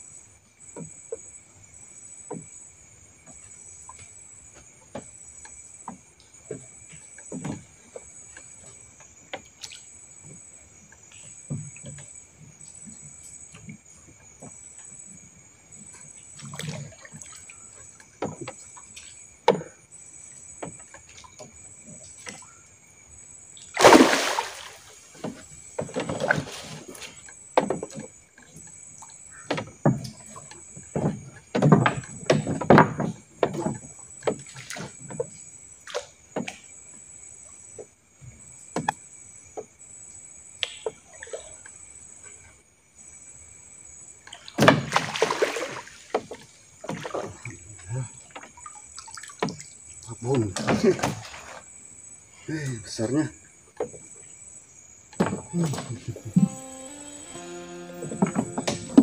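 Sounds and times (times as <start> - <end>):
high insect whine: 0.0 - 31.0, 54.1 - 59.0
landing net entering water: 23.7 - 27.2, 44.4 - 47.7, 55.2 - 59.0
fish splashing at water surface: 23.8 - 25.5, 44.5 - 47.4
knocks against boat: 29.4 - 35.3, 55.2 - 59.0.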